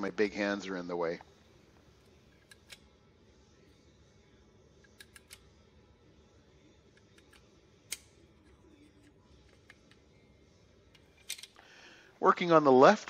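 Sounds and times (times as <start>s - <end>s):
small metal clicks: 4.8s - 5.4s, 10.9s - 11.6s.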